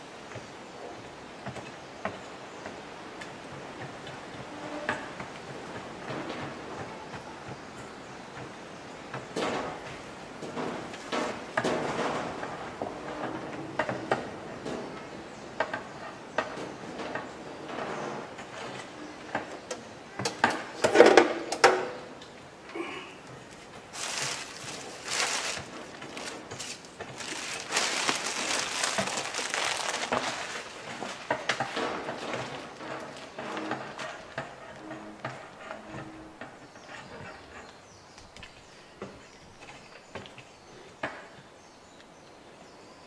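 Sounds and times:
plastic bags crinkling: 0:23.9 - 0:31.7.

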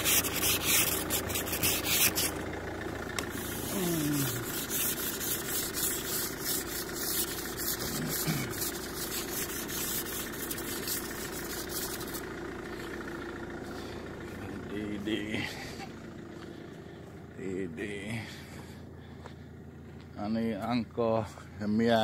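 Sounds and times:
frost scraped off car window: 0:00.0 - 0:02.4, 0:03.2 - 0:12.3
car engine idling: 0:00.0 - 0:22.0.

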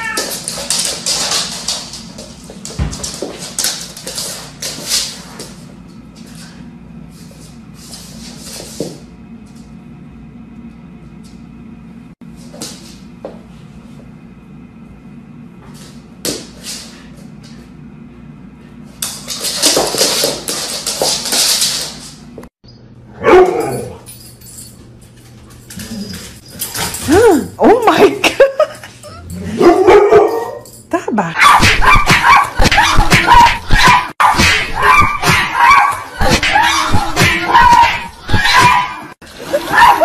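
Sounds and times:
scuffles and knocks on hard floor: 0:00.0 - 0:06.5, 0:07.8 - 0:09.1, 0:19.0 - 0:22.5.

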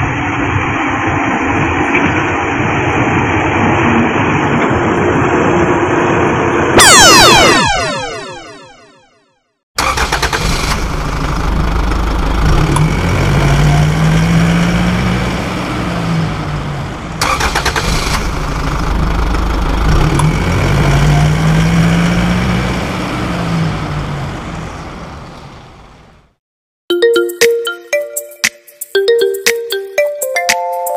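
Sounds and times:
engine starter crank: 0:09.8 - 0:13.2, 0:17.2 - 0:20.3
car engine running: 0:09.8 - 0:26.3.

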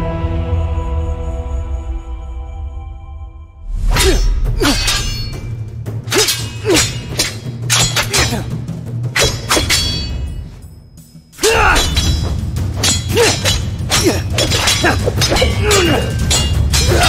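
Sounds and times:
low music drone: 0:00.0 - 0:17.0
metallic sword strikes: 0:03.8 - 0:08.5, 0:09.1 - 0:10.6, 0:11.4 - 0:17.0.

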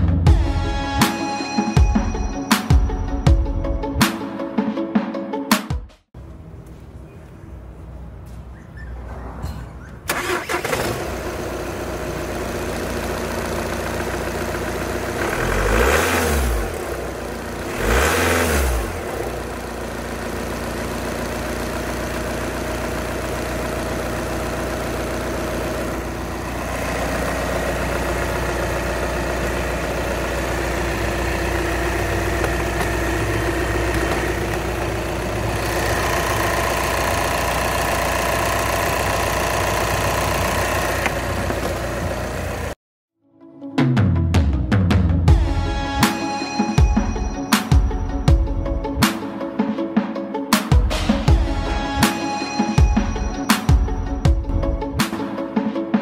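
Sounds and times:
diesel car engine idling and revving: 0:06.2 - 0:42.8.

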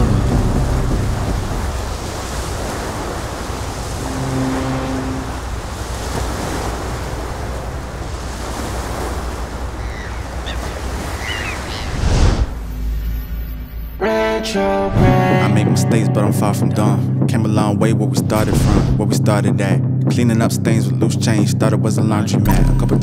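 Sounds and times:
motor boat rumble: 0:00.0 - 0:11.9
water rushing: 0:00.0 - 0:12.8
short low humming tone: 0:04.0 - 0:05.5.

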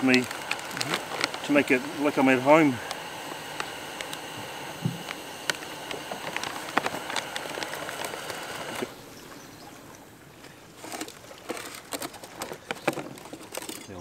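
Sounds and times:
gas stove burner hissing: 0:00.0 - 0:09.0.

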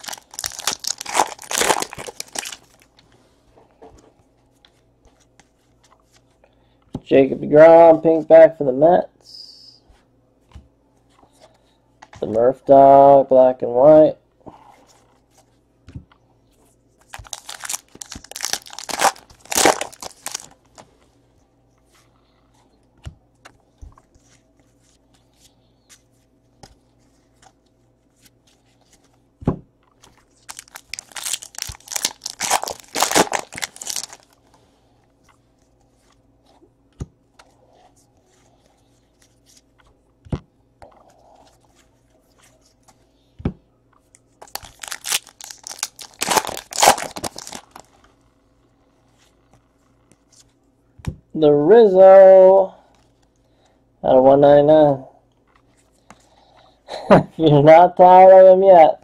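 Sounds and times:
wrappers torn open and crinkled: 0:00.0 - 0:02.8, 0:17.1 - 0:20.6, 0:30.4 - 0:34.4, 0:44.4 - 0:47.9.

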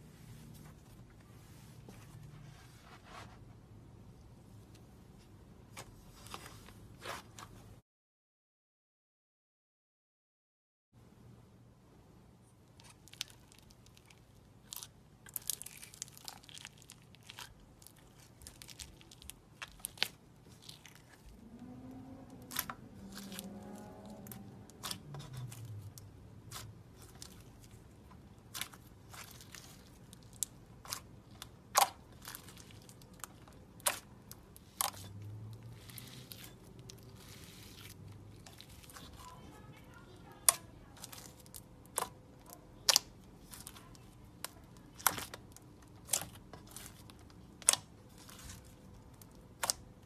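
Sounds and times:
slime crunching and popping: 0:12.8 - 0:21.2, 0:22.3 - 0:39.4, 0:40.4 - 0:50.0.

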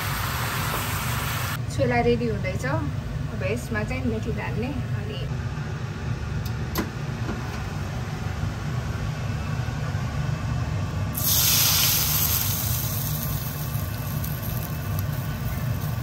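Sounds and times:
hot oil sizzling: 0:00.0 - 0:01.6, 0:11.1 - 0:16.0.

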